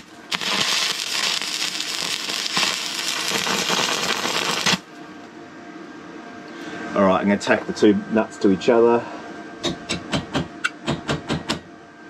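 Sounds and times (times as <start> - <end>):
welder arc crackling: 0.0 - 5.0.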